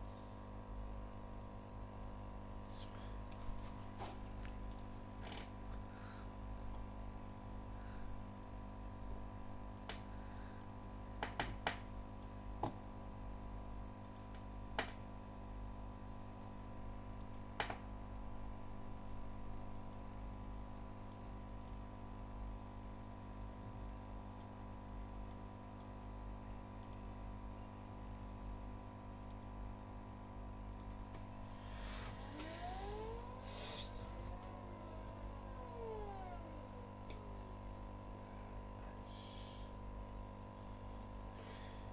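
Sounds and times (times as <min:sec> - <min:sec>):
computer mouse clicks: 0:04.6 - 0:05.0, 0:17.2 - 0:17.8, 0:25.2 - 0:26.0, 0:26.8 - 0:27.1, 0:29.3 - 0:29.6, 0:30.8 - 0:31.2
stepper motor whine: 0:30.8 - 0:39.9.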